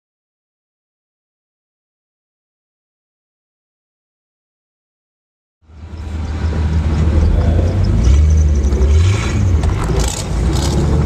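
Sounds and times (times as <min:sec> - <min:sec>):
car engine running: 0:05.7 - 0:11.0.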